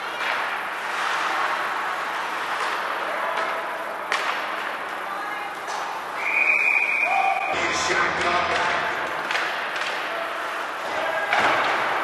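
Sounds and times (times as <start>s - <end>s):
referee's whistle: 6.2s - 7.6s.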